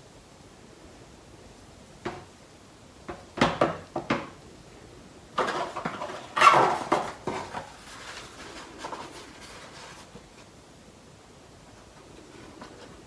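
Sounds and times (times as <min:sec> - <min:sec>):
knocks on cardboard: 0:03.1 - 0:04.3
cardboard scraping and rustling: 0:05.4 - 0:10.6, 0:11.8 - 0:13.0.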